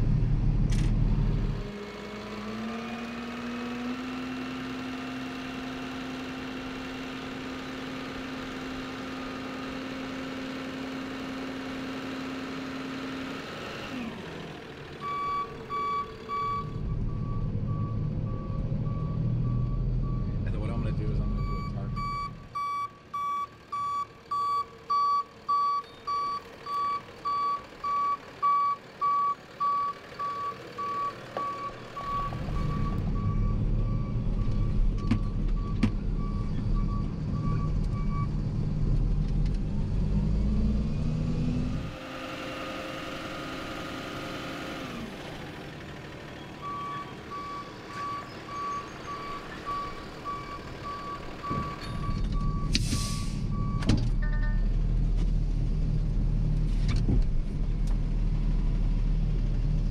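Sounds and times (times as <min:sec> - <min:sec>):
truck engine rumble: 0:00.0 - 0:59.9
reversing alarm beeping: 0:15.0 - 0:20.4, 0:21.2 - 0:38.4, 0:46.6 - 0:54.7.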